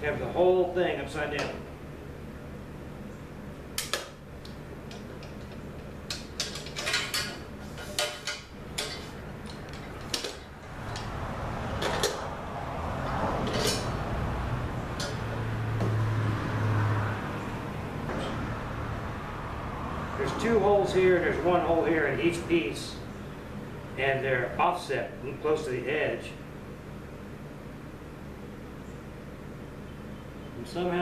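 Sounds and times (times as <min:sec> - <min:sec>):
metal rail clinking and clanking: 0:05.2 - 0:09.1, 0:11.8 - 0:12.3, 0:13.0 - 0:14.0, 0:15.0 - 0:15.4.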